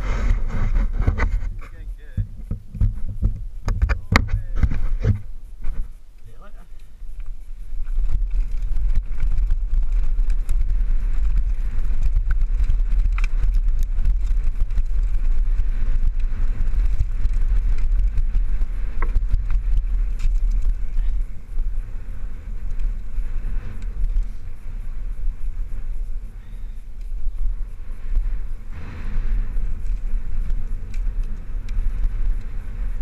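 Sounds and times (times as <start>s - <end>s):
bike clicks and rattles: 0.0s - 33.0s
wind buffeting microphone: 0.0s - 33.0s
tyres rolling on dirt and stones: 7.1s - 24.4s.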